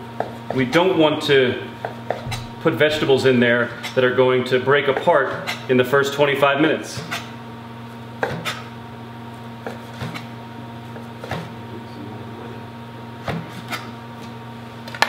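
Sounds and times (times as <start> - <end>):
knife chopping on cutting board: 1.8 - 2.5, 8.2 - 8.7, 9.6 - 10.3, 11.0 - 11.5, 13.2 - 13.9.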